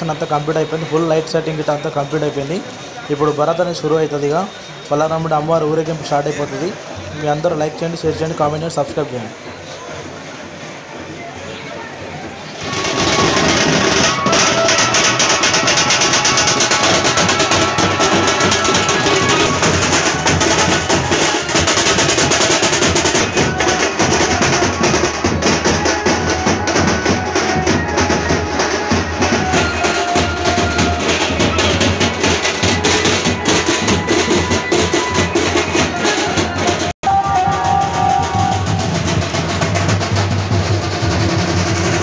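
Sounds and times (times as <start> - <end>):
drum-heavy band music: 12.0 - 42.0.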